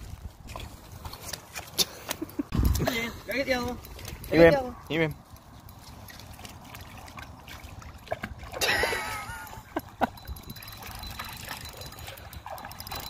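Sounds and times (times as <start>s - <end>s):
dog splashing through water: 5.8s - 9.1s.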